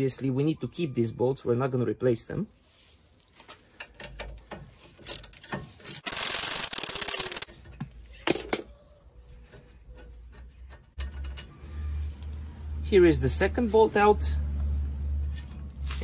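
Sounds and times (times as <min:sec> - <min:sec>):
tools clicking and scraping metal: 0:03.4 - 0:08.7, 0:09.4 - 0:12.3, 0:15.2 - 0:16.0
rapid ratchet clicking: 0:05.0 - 0:07.5.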